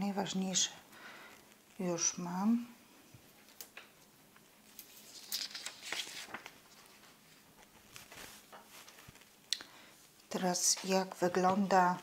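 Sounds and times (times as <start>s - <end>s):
paper rustling and crinkling: 3.3s - 9.5s.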